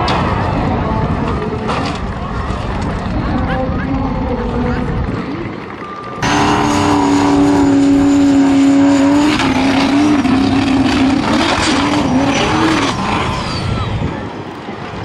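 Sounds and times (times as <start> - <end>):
buggy engine at high revs: 6.2 - 14.1.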